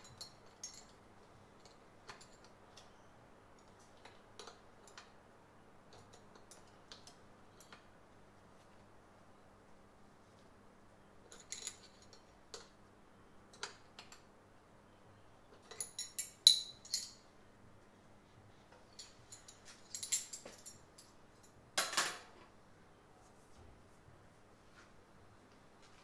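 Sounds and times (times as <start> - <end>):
metal tools clicking and clinking: 0.0 - 1.0, 11.3 - 12.7, 15.6 - 17.2, 18.9 - 22.3.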